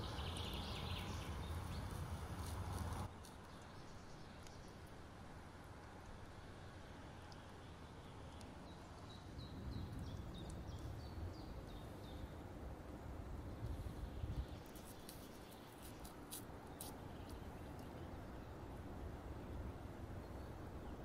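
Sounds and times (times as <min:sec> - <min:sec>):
small bird chirping: 0:00.0 - 0:04.8
low outdoor rumble: 0:00.0 - 0:21.0.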